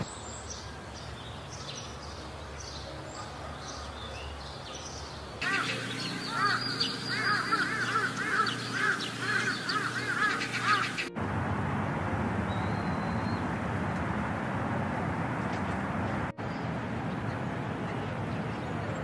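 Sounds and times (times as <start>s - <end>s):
birds chirping: 0.0s - 11.2s, 12.4s - 13.6s, 16.3s - 19.0s
bird arching calls: 5.4s - 11.2s.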